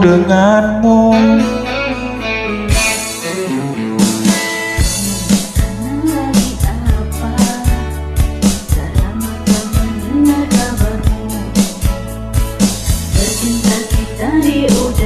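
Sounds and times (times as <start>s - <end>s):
pop backing track with guitar and drums: 0.0s - 15.0s.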